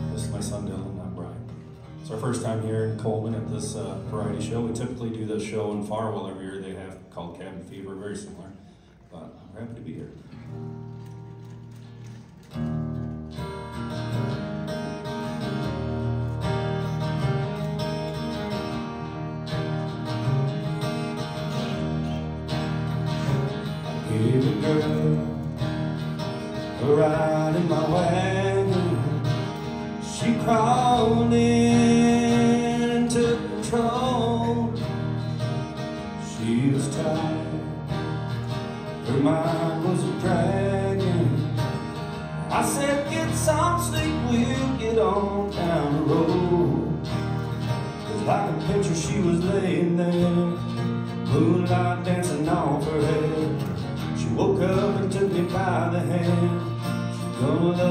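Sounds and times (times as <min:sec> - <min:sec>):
acoustic guitars strummed: 0:00.0 - 0:08.9, 0:09.9 - 0:57.9
man singing: 0:02.1 - 0:06.8, 0:23.8 - 0:25.8, 0:26.4 - 0:38.2, 0:38.9 - 0:57.9.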